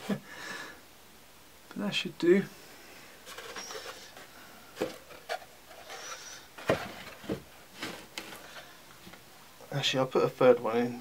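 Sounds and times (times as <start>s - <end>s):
wood knocking and scraping: 3.3s - 9.2s
faint squeaks: 5.3s - 6.5s.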